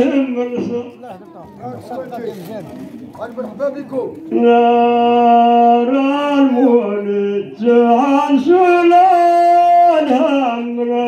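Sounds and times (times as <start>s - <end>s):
man singing a slow chant: 4.3s - 11.0s.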